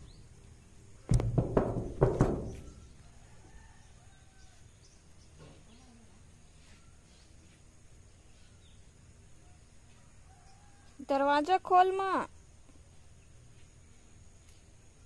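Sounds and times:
faint bird chirps: 2.5s - 11.0s.

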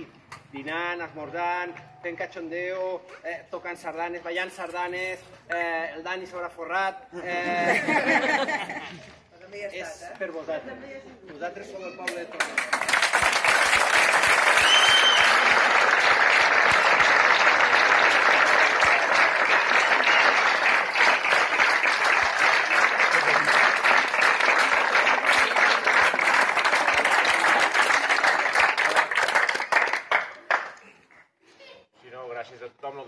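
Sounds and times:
crowd applauding: 12.4s - 30.8s
high whistle-like sound: 14.6s - 15.4s.

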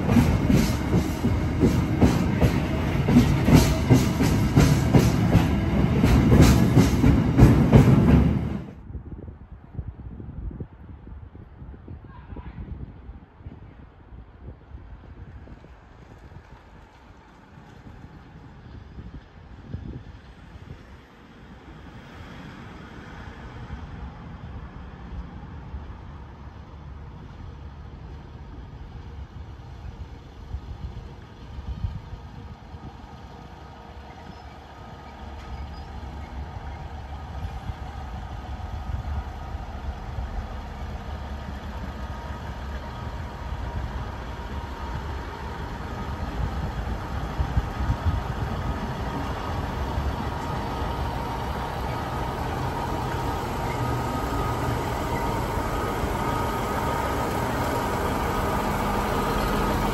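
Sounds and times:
train wheel noise: 0.0s - 8.8s, 25.0s - 59.9s
diesel railcar engine: 0.0s - 9.0s, 13.7s - 59.9s.

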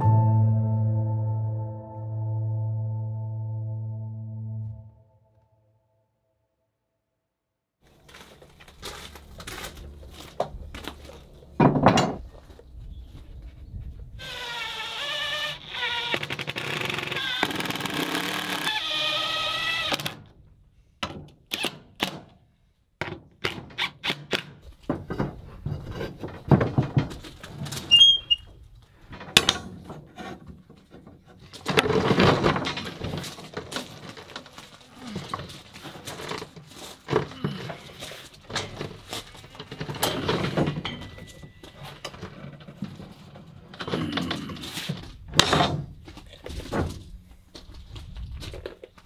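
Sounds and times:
rebar knocking and clanking: 29.0s - 33.6s, 38.5s - 44.5s.

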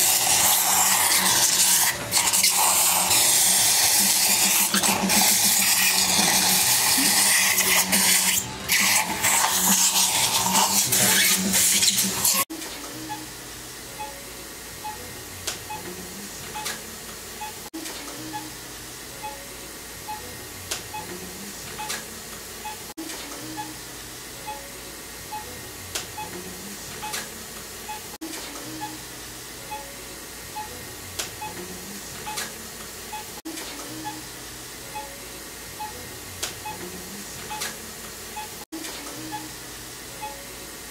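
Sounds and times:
soft background music: 12.5s - 40.9s.

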